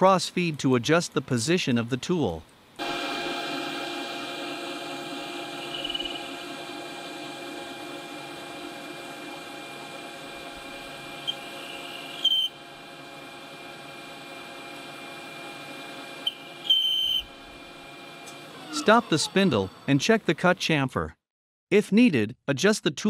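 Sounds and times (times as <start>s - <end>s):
metal lathe humming: 2.8s - 20.3s
cutting tool squealing: 5.5s - 6.4s, 11.2s - 12.6s, 18.2s - 20.0s.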